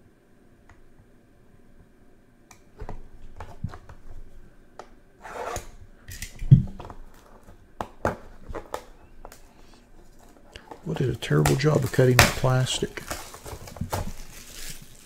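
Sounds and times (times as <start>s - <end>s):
plastic wrap tearing: 10.8s - 15.0s.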